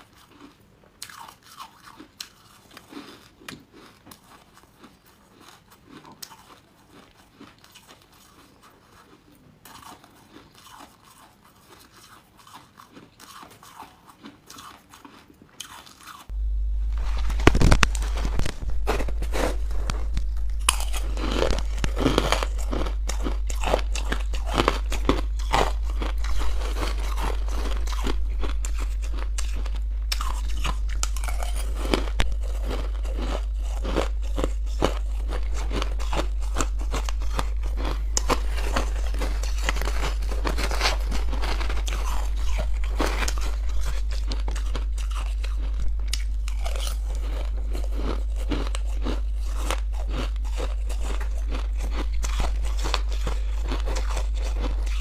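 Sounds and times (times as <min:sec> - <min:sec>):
crunching ice chewing: 0:00.0 - 0:16.4, 0:17.0 - 0:55.0
steady low hum: 0:16.1 - 0:55.0.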